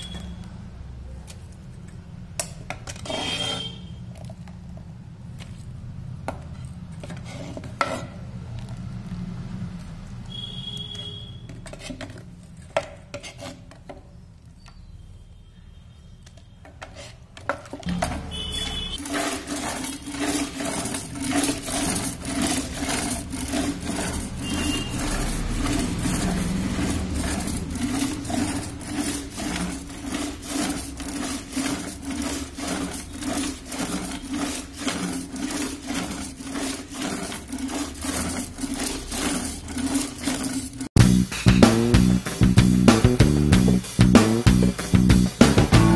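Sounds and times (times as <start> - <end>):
butter churn churning and knocking: 16.7 - 41.1.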